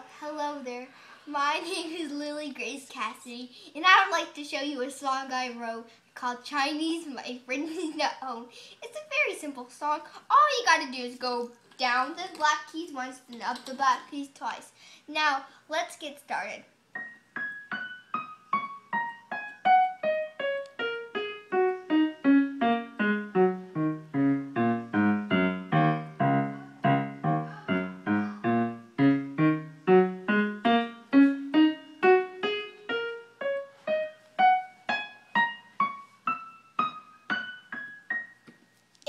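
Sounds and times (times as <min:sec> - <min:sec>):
keyboard notes played singly: 0:17.0 - 0:38.6.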